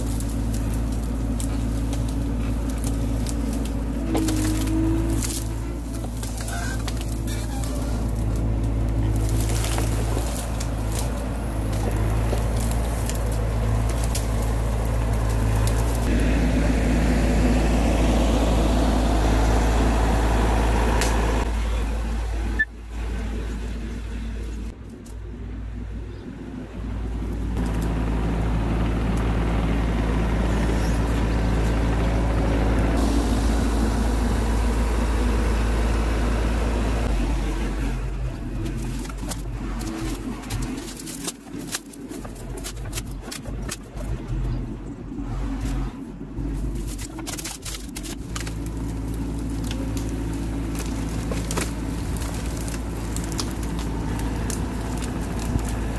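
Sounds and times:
diesel engine low drone: 0.0 - 55.9.

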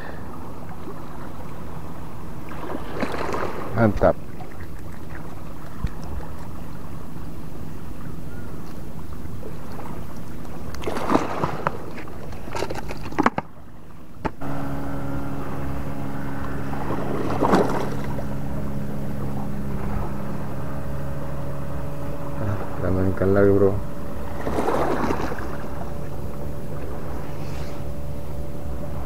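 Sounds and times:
low engine drone: 0.0 - 29.0
handling knocks and rustles: 11.5 - 13.6.

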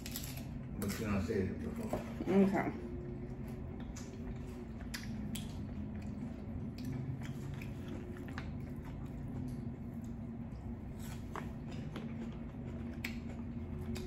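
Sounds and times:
steady low hum: 0.0 - 14.0
person chewing: 3.3 - 14.0.

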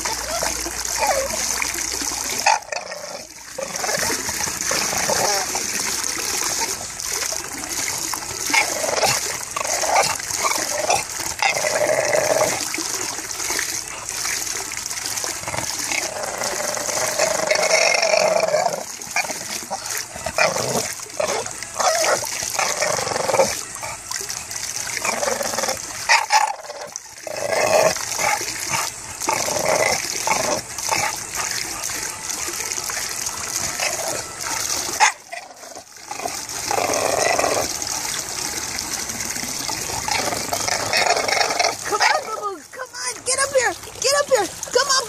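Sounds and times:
dog grumbling and whining: 0.0 - 1.6, 2.3 - 5.8, 8.4 - 12.7, 15.4 - 24.0
water splashing over tub edge: 0.0 - 45.0.

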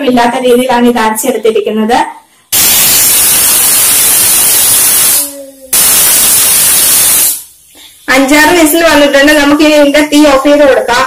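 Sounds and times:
pressure cooker whistling: 2.6 - 5.2, 5.8 - 7.5.

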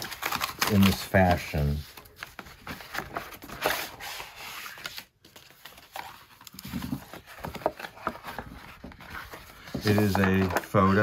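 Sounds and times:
stiff paper crackling and tearing: 0.0 - 5.0.

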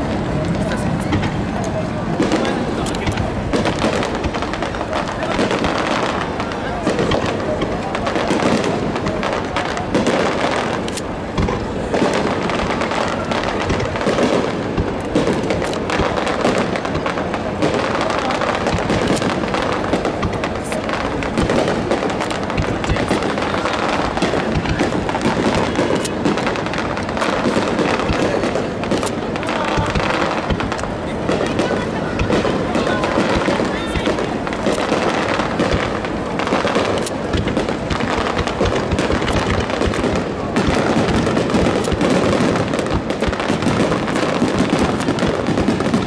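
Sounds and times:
fireworks bursting and crackling: 0.0 - 46.0.

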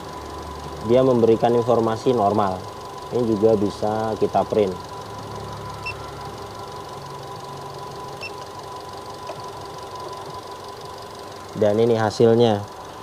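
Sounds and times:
car engine idling: 0.0 - 13.0
short electronic beeps: 5.7 - 6.2, 8.2 - 8.4.

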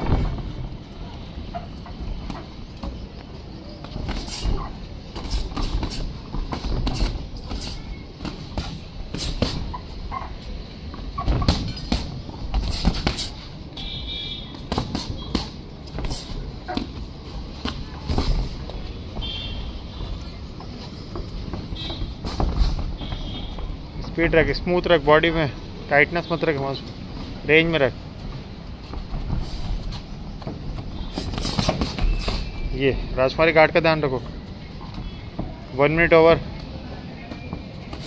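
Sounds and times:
shuffling footwork: 0.0 - 13.9, 14.6 - 24.2, 28.0 - 32.7
boxing gloves thudding and slapping: 3.8 - 9.9, 11.1 - 13.4, 14.6 - 18.8, 21.2 - 23.8, 29.0 - 32.7.

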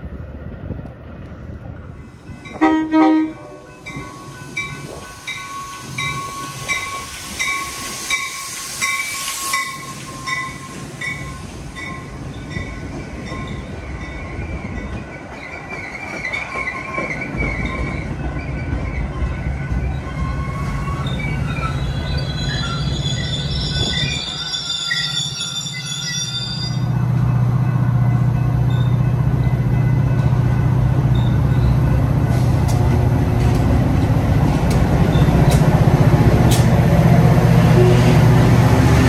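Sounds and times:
train horn blast: 2.6 - 3.7, 37.6 - 38.8
train wheel clatter: 3.8 - 25.1, 31.1 - 38.2.

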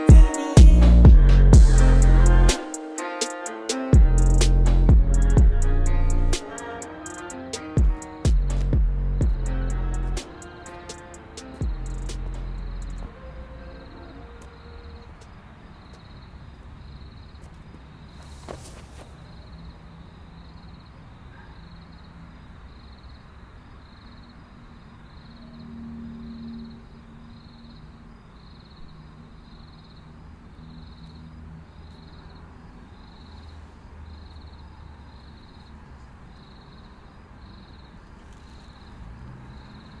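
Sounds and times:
low rumbling hum: 0.7 - 2.5, 4.0 - 6.4, 8.3 - 10.2
crickets chirping: 6.0 - 40.0.

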